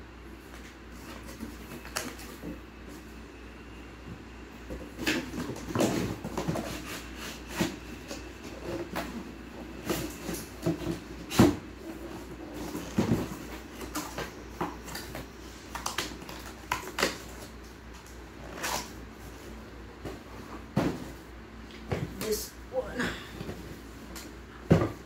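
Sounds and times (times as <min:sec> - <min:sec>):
cardboard boxes handled: 0:04.1 - 0:22.4.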